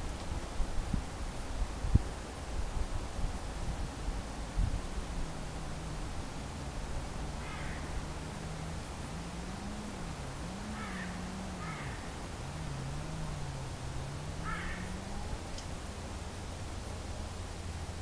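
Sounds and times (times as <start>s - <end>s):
microphone hiss: 0.0s - 18.0s
low wavering hum: 3.2s - 18.0s
crow cawing: 7.4s - 8.0s, 10.7s - 12.1s, 14.4s - 15.0s.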